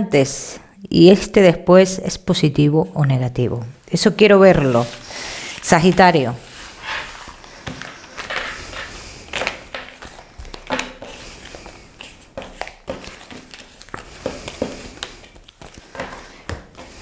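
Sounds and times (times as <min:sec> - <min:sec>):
cards being shuffled: 0:04.6 - 0:17.0.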